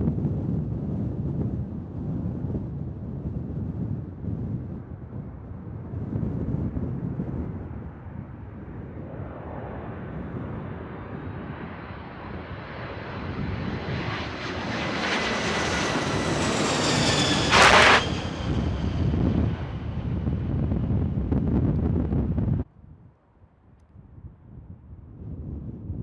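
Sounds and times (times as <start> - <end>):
wind rumble on microphone: 0.0 - 26.0
jet airliner passing overhead: 4.8 - 22.2
very loud burst: 17.3 - 18.9.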